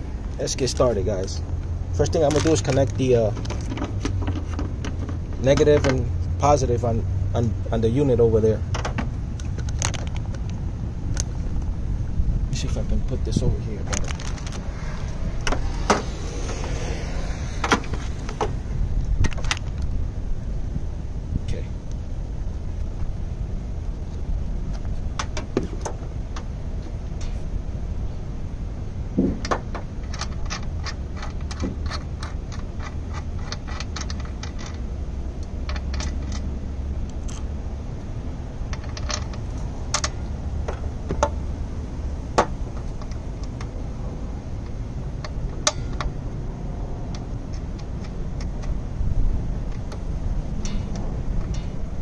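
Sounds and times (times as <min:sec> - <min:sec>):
low outdoor rumble: 0:00.0 - 0:52.0
small metallic clicks: 0:29.4 - 0:37.5, 0:38.6 - 0:41.4, 0:44.6 - 0:46.2, 0:47.0 - 0:52.0.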